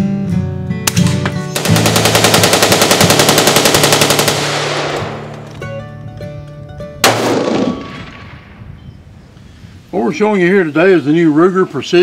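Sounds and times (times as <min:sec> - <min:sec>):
guitar music: 0:00.0 - 0:07.0
automatic gunfire: 0:00.9 - 0:05.4, 0:07.0 - 0:08.4
loud gunshot: 0:07.0 - 0:08.6.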